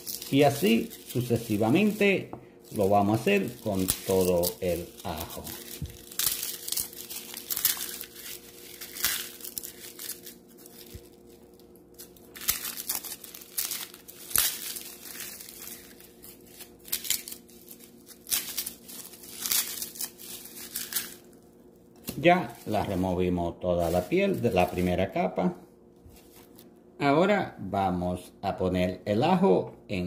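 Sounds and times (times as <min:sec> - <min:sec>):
garlic skin rustling and tearing: 0:00.0 - 0:21.4.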